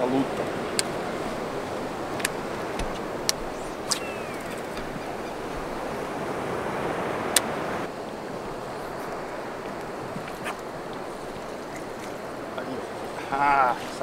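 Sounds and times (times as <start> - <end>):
water lapping around a boat: 0.0 - 14.0
sharp clicks: 2.1 - 4.9.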